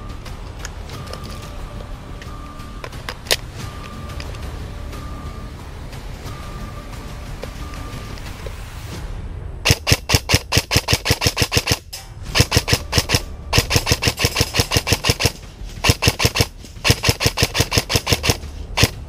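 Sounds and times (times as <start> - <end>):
airsoft rifles firing bursts: 9.7 - 19.0.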